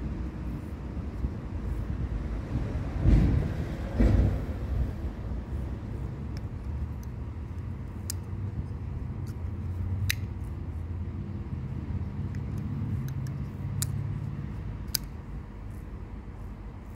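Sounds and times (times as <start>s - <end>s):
folding knife clicks: 6.3s - 8.4s, 10.0s - 10.4s, 12.3s - 14.1s, 14.8s - 15.2s.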